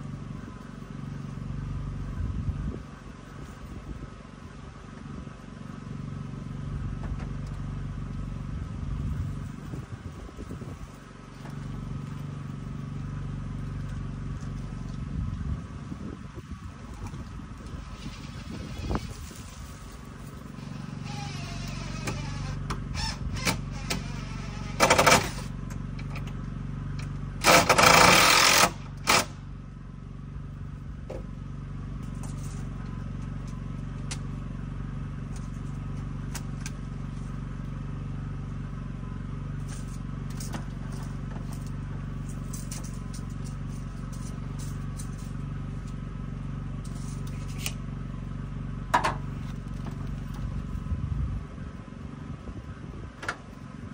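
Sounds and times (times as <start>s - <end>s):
steady low hum: 0.0s - 53.9s
cordless power tool bursts: 27.4s - 29.4s.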